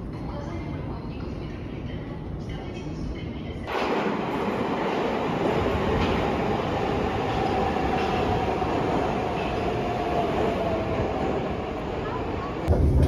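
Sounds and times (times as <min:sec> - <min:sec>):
subway train wheels rumbling: 0:00.0 - 0:13.0.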